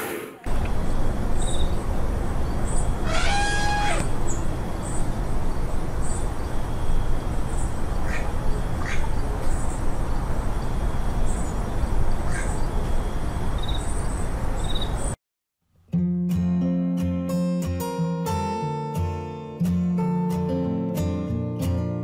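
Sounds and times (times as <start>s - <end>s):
short bird calls: 3.0s - 4.4s.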